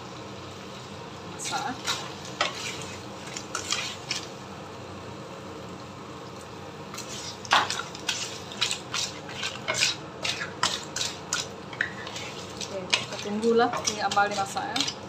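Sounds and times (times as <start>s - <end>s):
liquid sizzling: 0.0s - 4.5s, 6.2s - 15.0s
shells clattering in a wok: 10.6s - 15.0s.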